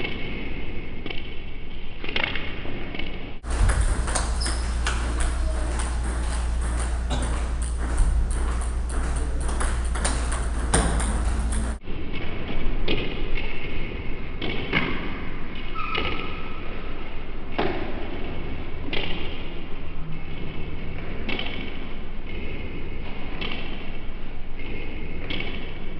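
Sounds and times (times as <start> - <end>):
low hum: 3.2 - 14.4
table tennis ball clicking: 3.6 - 11.8.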